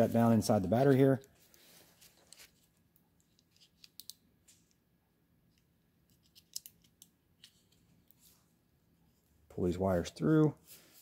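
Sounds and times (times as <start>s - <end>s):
faint clicks and scrapes of battery: 1.2s - 4.8s, 5.5s - 8.3s.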